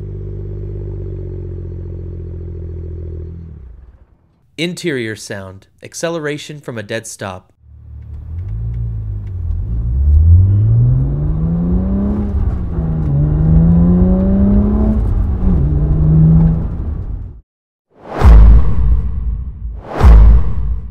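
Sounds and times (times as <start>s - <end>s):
car engine accelerating: 0.0s - 4.3s, 7.6s - 17.4s.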